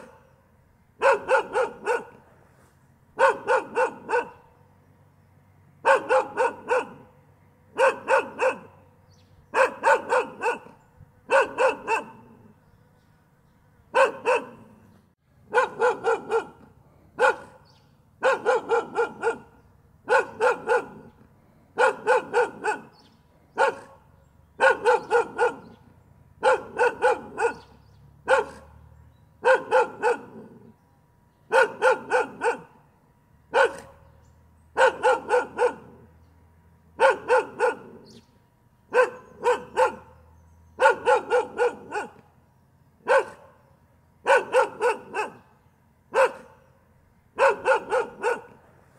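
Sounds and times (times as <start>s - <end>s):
dog barking: 0.0s - 0.3s, 1.0s - 2.2s, 3.2s - 4.5s, 5.8s - 7.1s, 7.7s - 8.8s, 9.5s - 12.5s, 13.9s - 14.8s, 15.5s - 21.2s, 21.8s - 28.8s, 29.4s - 30.7s, 31.5s - 32.8s, 33.5s - 34.1s, 34.7s - 36.1s, 37.0s - 38.2s, 38.9s - 42.2s, 43.0s - 43.6s, 44.2s - 45.5s, 46.1s - 46.6s, 47.4s - 48.6s.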